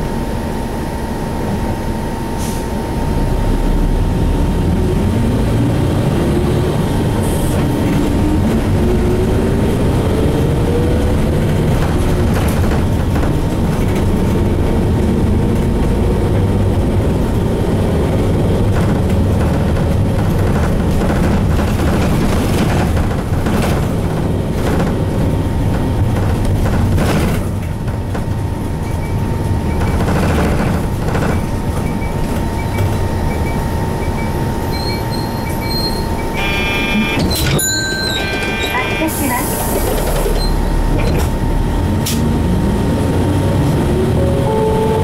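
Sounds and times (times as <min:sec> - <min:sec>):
bus diesel engine running: 0:00.0 - 0:45.0
road noise: 0:00.0 - 0:45.0
body knocks and rattles: 0:18.6 - 0:33.0.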